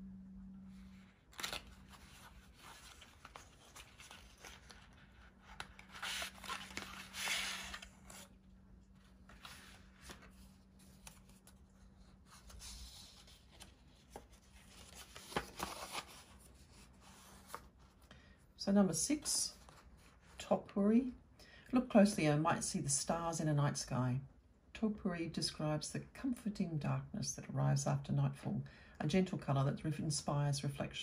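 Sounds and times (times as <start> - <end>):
paper rustling and scraping: 0.8 - 8.3, 8.9 - 18.0.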